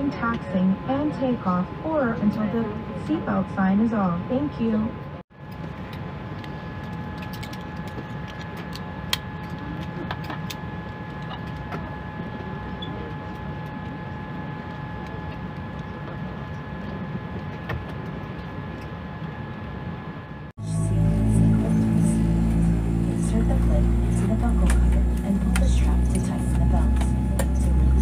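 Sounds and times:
airliner cabin hum: 0:00.0 - 0:28.0
high steady whining tones: 0:00.0 - 0:28.0.

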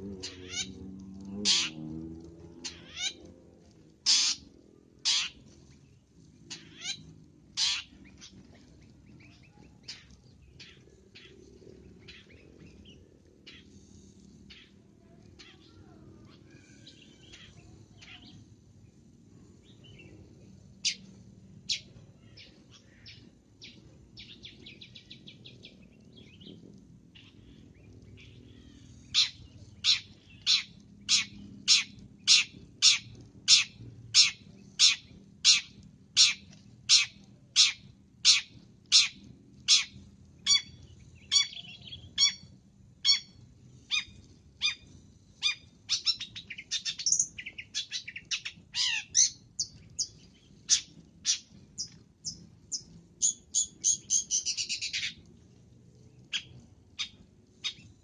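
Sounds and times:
shrike calling: 0:01.4 - 0:01.8, 0:04.0 - 0:05.4, 0:07.6 - 0:08.3
harsh rasping chatter: 0:02.6 - 0:23.9.

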